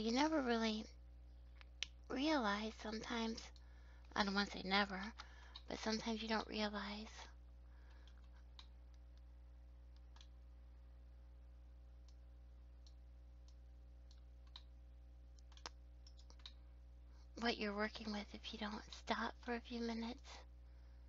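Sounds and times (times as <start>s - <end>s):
low electrical hum: 0.0s - 21.0s
mouse and keyboard clicks: 9.9s - 10.3s, 12.8s - 14.7s, 15.3s - 16.6s.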